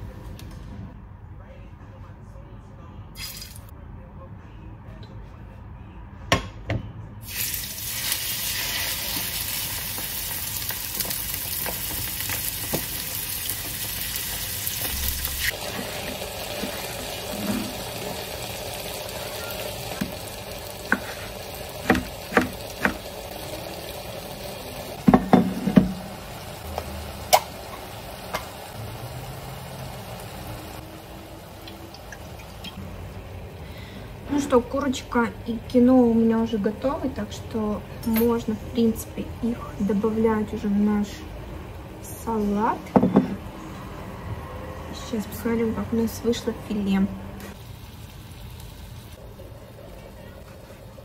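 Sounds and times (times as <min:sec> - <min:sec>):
chicken sizzling in a pan: 0:07.3 - 0:32.8, 0:47.5 - 0:51.0.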